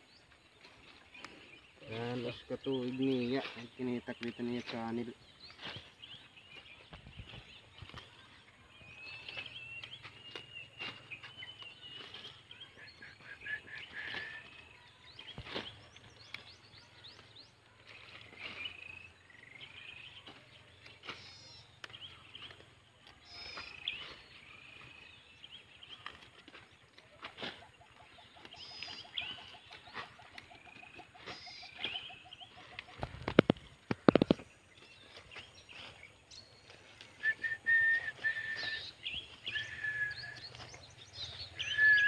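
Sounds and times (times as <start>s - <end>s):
birds chirping: 0.0s - 42.0s
snaps and rustles of vegetables: 9.1s - 41.6s.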